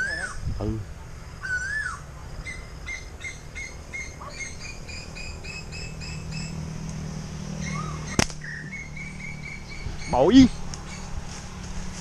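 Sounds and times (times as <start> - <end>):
bird chirping: 0.0 - 11.2
rise-and-fall bird call: 1.4 - 6.6.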